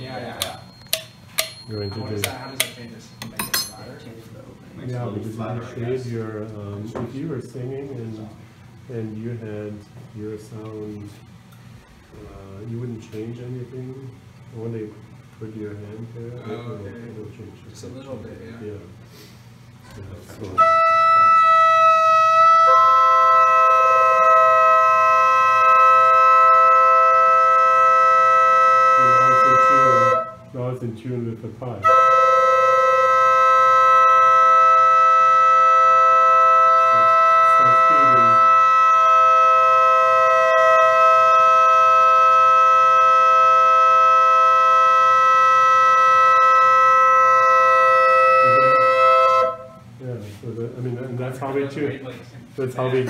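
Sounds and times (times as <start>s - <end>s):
organ pipe tones: 0.0s - 3.9s, 20.0s - 30.6s, 31.7s - 50.4s.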